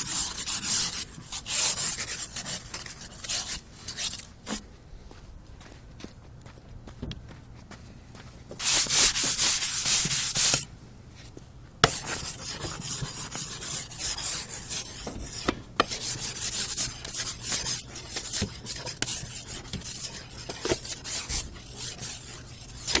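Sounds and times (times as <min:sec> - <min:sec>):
ice scraper on car window: 0:11.9 - 0:23.0.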